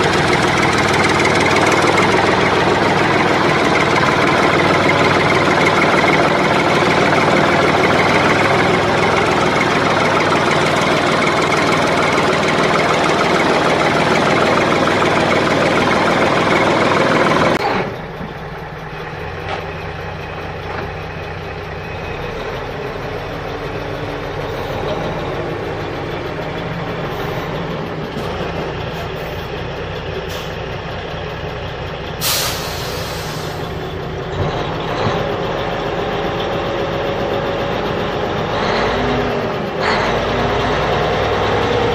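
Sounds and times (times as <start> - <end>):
truck engine running: 0.0 - 41.9
short hiss: 32.2 - 33.6.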